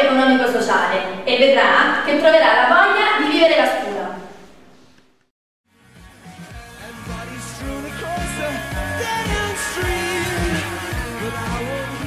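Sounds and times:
drum beat: 6.3 - 12.0
person singing: 6.7 - 12.0.

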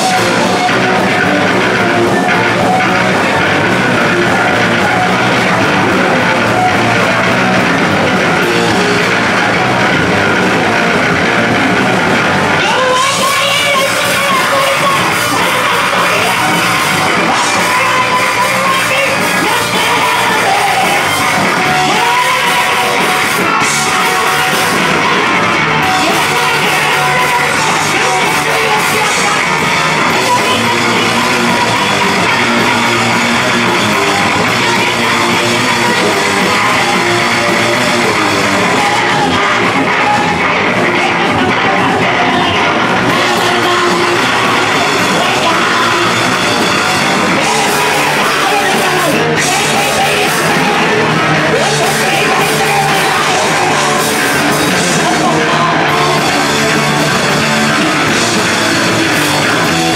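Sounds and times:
live rock band playing: 0.0 - 59.9
woman singing and yelling: 12.6 - 25.2, 25.8 - 33.1, 47.2 - 56.7.

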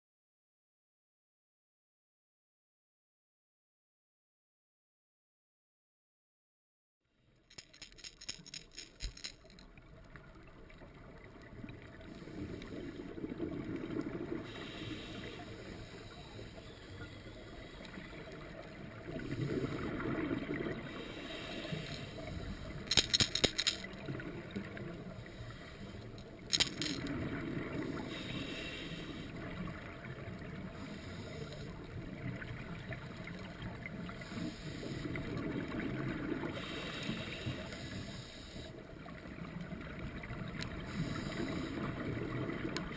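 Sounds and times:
hissing regulator breaths: 14.4 - 18.0, 20.9 - 23.8, 28.0 - 29.4, 30.8 - 31.8, 34.2 - 35.2, 36.6 - 38.8, 40.8 - 41.9.

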